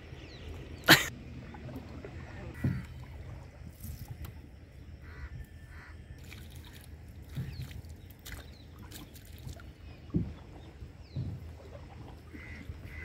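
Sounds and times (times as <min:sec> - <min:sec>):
knocks on wooden hull: 0:02.6 - 0:02.8, 0:10.1 - 0:10.5, 0:11.1 - 0:11.6
water dripping and splashing: 0:06.2 - 0:13.0.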